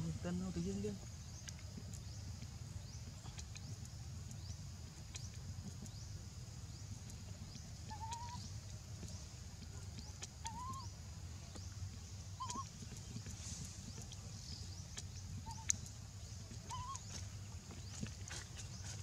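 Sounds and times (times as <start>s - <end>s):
baby macaque whistle-like calls: 10.5s - 10.9s, 12.4s - 12.6s, 16.7s - 17.0s.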